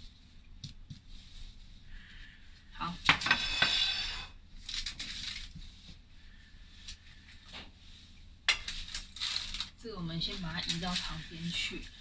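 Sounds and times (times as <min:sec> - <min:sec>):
handling and rustling: 0:04.6 - 0:06.0, 0:08.5 - 0:12.0.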